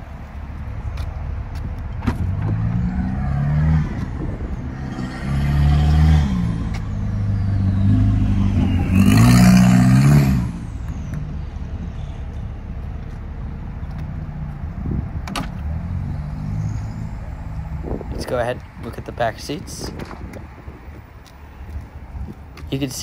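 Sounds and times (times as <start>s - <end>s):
vehicle engine revving: 2.1s - 11.4s.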